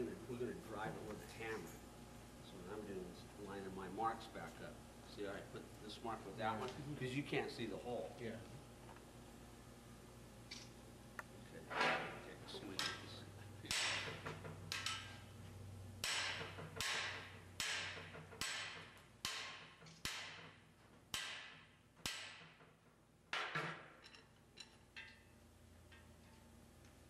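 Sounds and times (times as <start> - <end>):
hammer striking metal tool: 13.7 - 15.1, 16.0 - 22.6.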